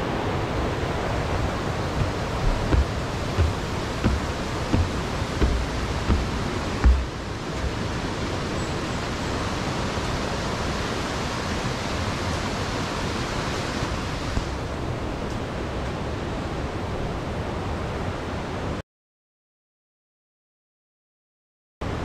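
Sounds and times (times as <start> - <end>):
mountain stream rushing: 0.0 - 14.4.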